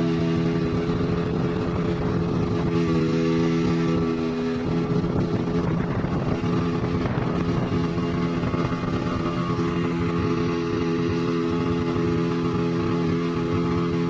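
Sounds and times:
motorboat engine running: 0:00.0 - 0:14.0
water rushing and spray: 0:00.0 - 0:14.0.

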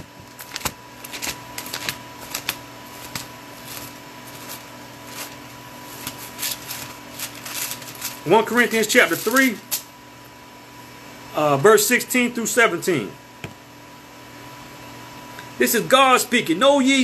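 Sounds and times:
thin pages rustling and flicking: 0:00.0 - 0:09.9.

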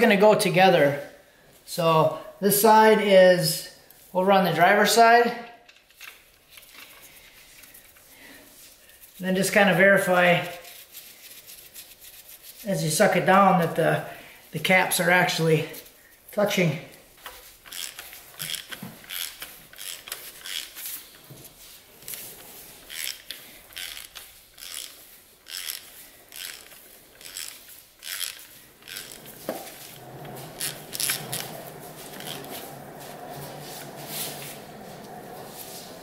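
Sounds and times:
ratchet pawl clicking: 0:17.6 - 0:20.8, 0:22.8 - 0:29.4, 0:30.6 - 0:31.5.

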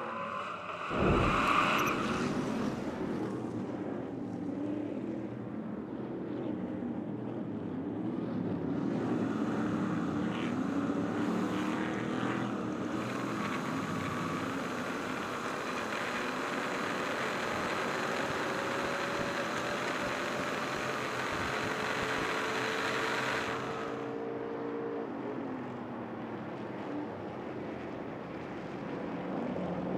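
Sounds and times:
truck engine running hard: 0:09.0 - 0:24.2.

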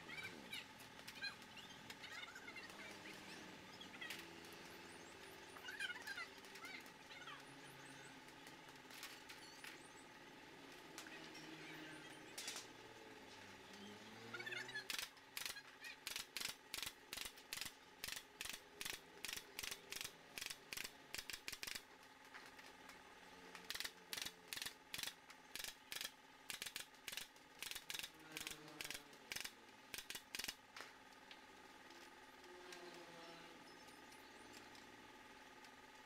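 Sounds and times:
pneumatic nail gun firing: 0:14.9 - 0:21.8, 0:23.7 - 0:30.6.

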